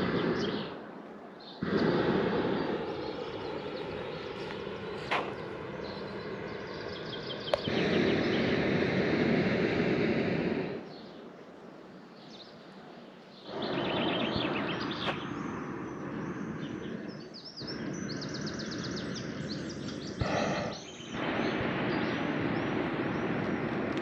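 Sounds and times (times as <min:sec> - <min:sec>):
small birds chirping: 0:00.0 - 0:24.0
steady rushing noise: 0:00.0 - 0:24.0.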